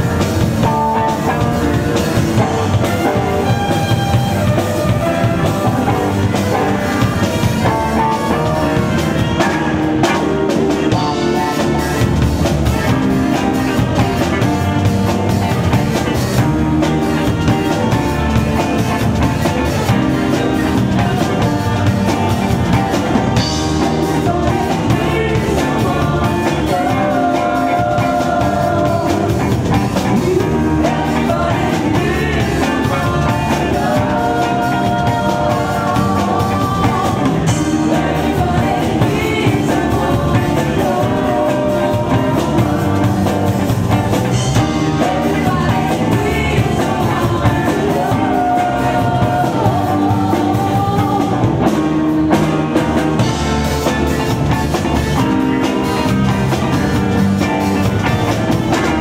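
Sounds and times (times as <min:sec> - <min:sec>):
funk band playing: 0:00.0 - 0:59.0
person singing: 0:18.8 - 0:52.0.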